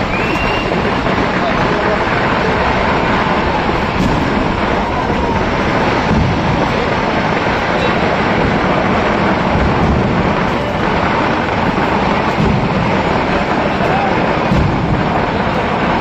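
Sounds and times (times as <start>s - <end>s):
firecrackers exploding: 0.0s - 16.0s.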